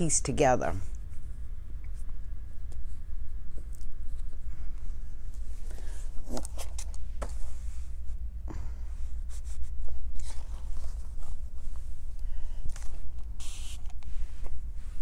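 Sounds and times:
steady low hum: 0.0 - 15.0
fabric rustling: 9.0 - 15.0.

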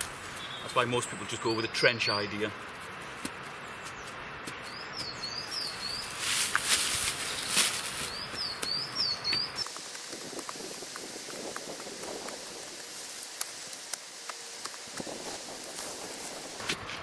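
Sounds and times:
small bird chirping: 0.3 - 2.4, 3.6 - 6.2, 7.3 - 9.7
stick scraping into soil: 5.9 - 8.7.

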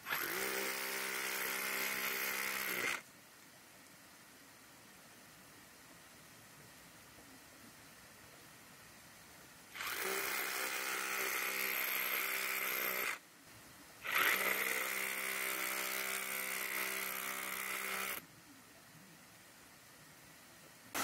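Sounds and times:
hammer drill chiselling rock: 0.0 - 3.0, 9.8 - 13.2, 14.0 - 18.2.

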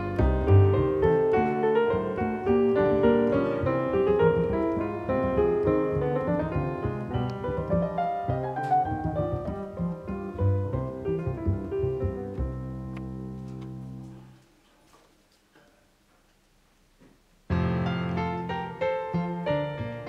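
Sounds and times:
piano music: 0.0 - 14.3, 17.5 - 20.0.

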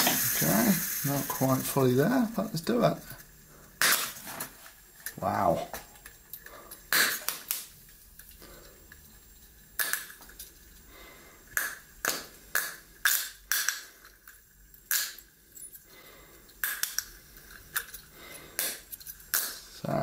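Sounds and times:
sharp cracks and pops: 3.2 - 10.5, 11.5 - 15.3, 16.5 - 19.8.

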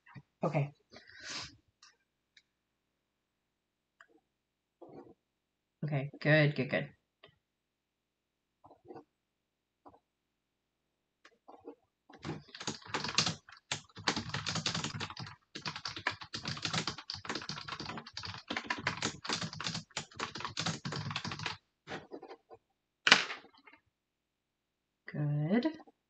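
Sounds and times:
rapid keyboard typing: 12.2 - 21.6.

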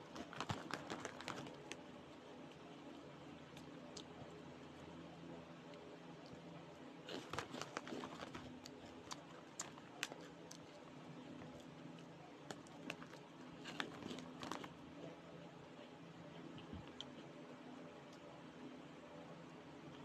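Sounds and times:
plastic wrapper crinkling: 0.1 - 1.8, 7.1 - 10.6, 12.5 - 14.7.

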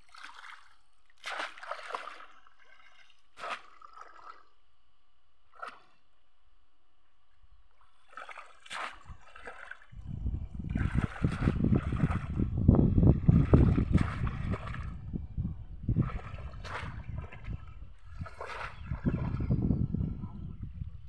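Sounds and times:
water splashing: 0.0 - 4.6, 8.0 - 15.0, 15.9 - 19.6
wind buffeting microphone: 9.9 - 21.0.

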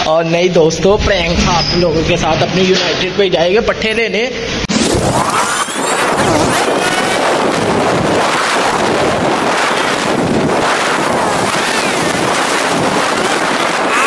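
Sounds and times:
wind rushing over microphone: 4.6 - 14.0.

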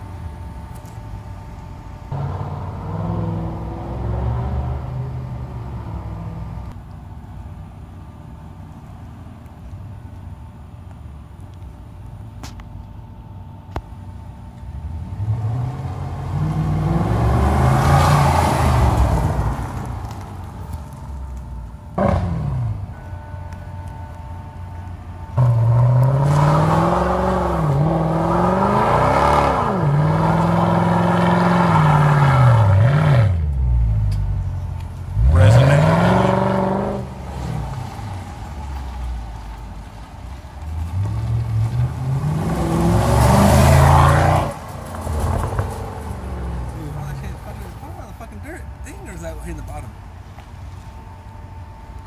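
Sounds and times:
car engine revving hard: 25.4 - 33.4, 35.2 - 37.7.

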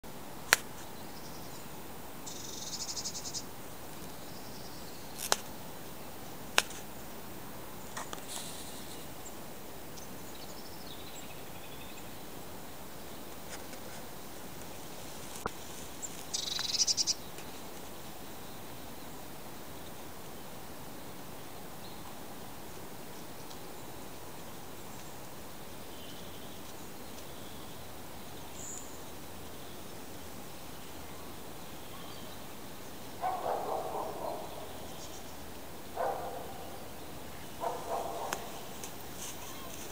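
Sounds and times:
steady hiss: 0.0 - 39.9
small birds trilling and chirping: 0.7 - 39.9
bird chirps: 2.3 - 3.5, 16.0 - 17.6.

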